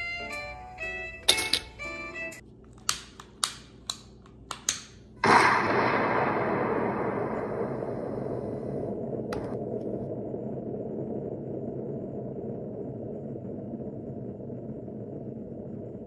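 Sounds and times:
deep explosion rumble: 5.2 - 16.0.

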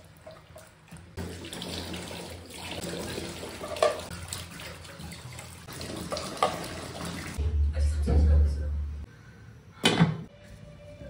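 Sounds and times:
tap water splashing into sink: 0.2 - 7.4.

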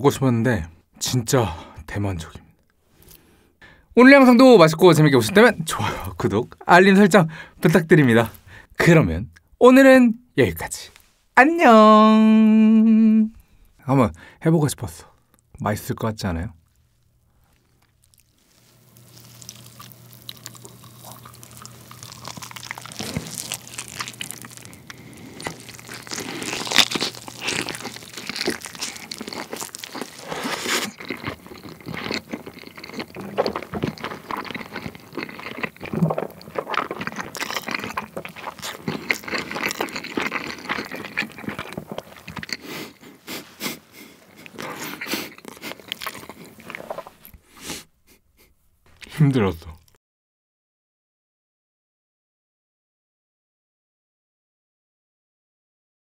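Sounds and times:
biting and chewing chicken: 17.4 - 47.5
wet sticky mouth sounds: 17.6 - 47.9.

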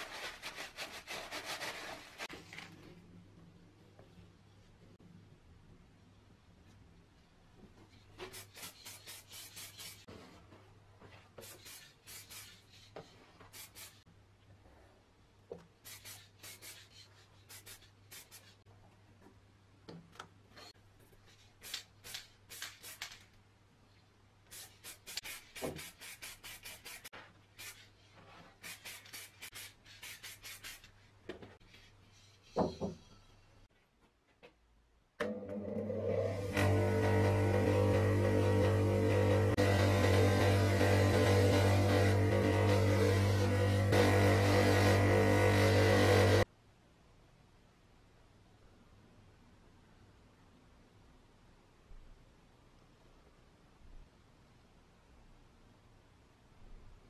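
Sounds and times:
spray paint can hissing: 13.5 - 14.0, 15.8 - 18.6, 21.6 - 23.2, 24.5 - 27.8, 28.6 - 30.9.

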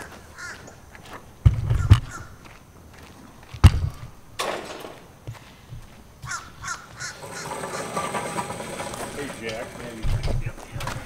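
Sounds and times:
crows cawing: 0.0 - 0.8, 1.8 - 2.4, 6.2 - 8.3.

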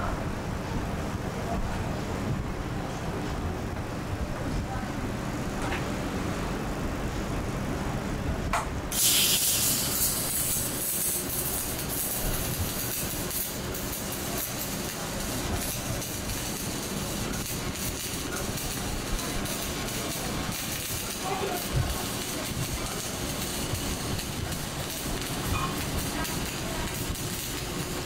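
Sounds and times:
arc welding sizzling hiss: 8.9 - 28.0.

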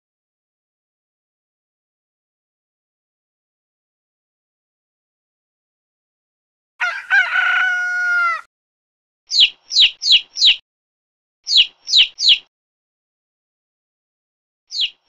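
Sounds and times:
rooster crowing: 6.8 - 8.5
chick peeping: 9.3 - 10.6, 11.5 - 12.5, 14.7 - 15.0.

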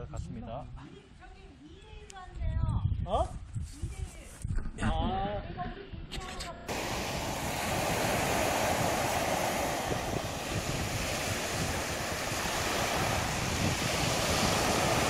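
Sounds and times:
wind rumbling on microphone: 1.7 - 15.0
small waves breaking on beach: 6.7 - 15.0.

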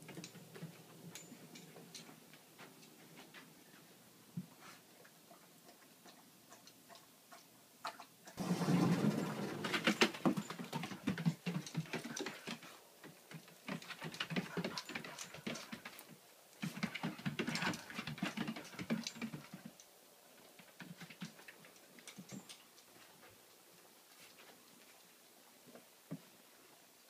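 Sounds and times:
dog paws pattering on floor: 8.4 - 19.8.

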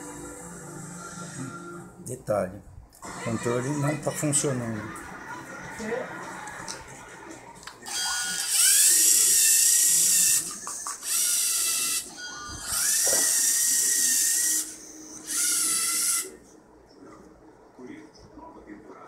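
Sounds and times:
robot electric motor whine: 7.9 - 16.4.

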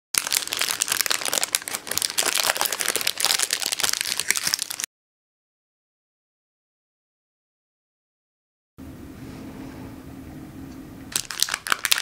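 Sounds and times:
baking paper crinkling: 0.2 - 4.9, 11.1 - 12.0.

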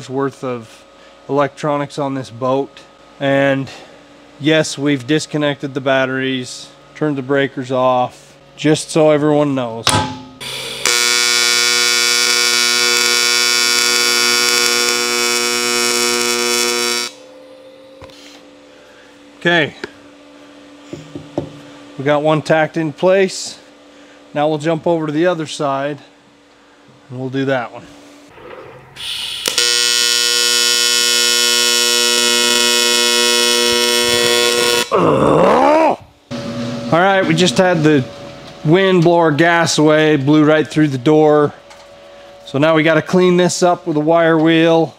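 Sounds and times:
welding arc buzzing: 10.0 - 18.4, 29.0 - 35.0.

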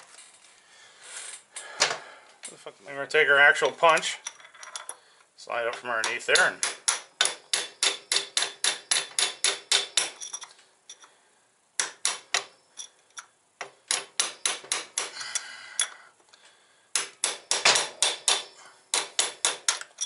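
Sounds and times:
hammer tapping metal punch: 6.0 - 10.4, 13.6 - 15.2, 17.0 - 20.0.

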